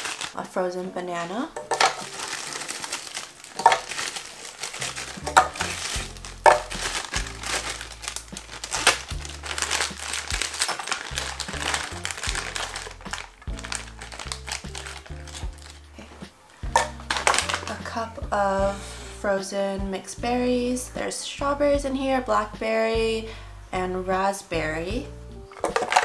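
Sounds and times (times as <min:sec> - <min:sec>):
plastic bags crinkling: 0:00.0 - 0:00.5, 0:01.4 - 0:17.9, 0:25.5 - 0:26.0
frozen fruit dropping into blender: 0:01.6 - 0:15.5, 0:16.7 - 0:17.8, 0:25.6 - 0:26.0
background music with bass line: 0:04.9 - 0:25.5.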